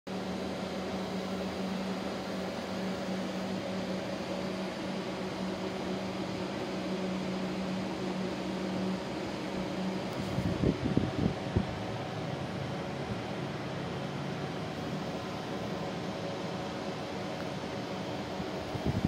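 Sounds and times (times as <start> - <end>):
air conditioner fan blowing: 0.1 - 19.0
steady low hum: 0.1 - 19.0.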